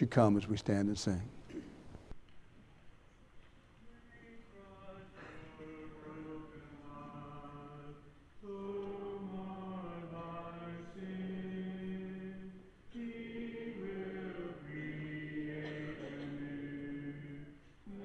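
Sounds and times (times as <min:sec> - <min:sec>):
congregation singing a hymn: 0:03.9 - 0:18.0.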